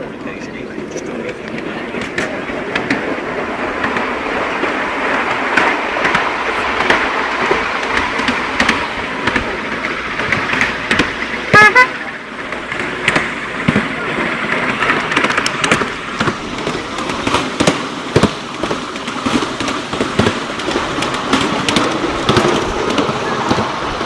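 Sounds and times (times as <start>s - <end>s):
miniature train running on track: 0.0s - 24.0s
locomotive whistle toots: 11.5s - 12.3s.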